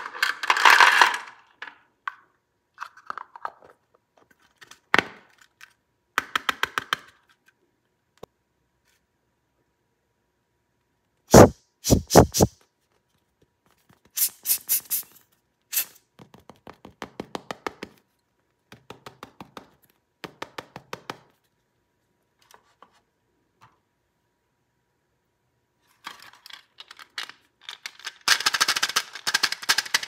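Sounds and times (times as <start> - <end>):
plastic toy clicking and clacking: 26.1 - 30.0.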